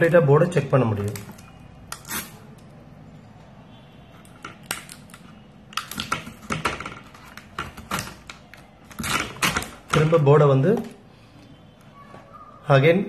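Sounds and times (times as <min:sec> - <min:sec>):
plastic sheet clicks and crinkles: 0:04.2 - 0:11.0.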